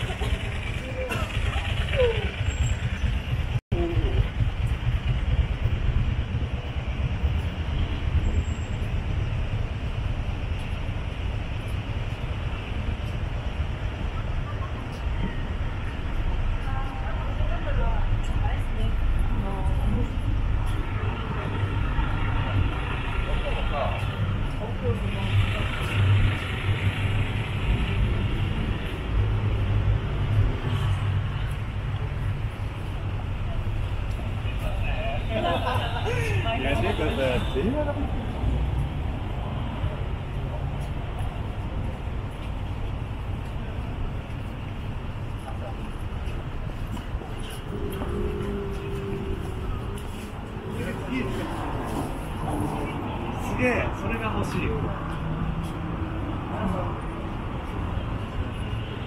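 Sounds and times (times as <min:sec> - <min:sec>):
vehicle engine running: 0:00.0 - 0:07.7
low rumble of city street: 0:00.0 - 0:59.0.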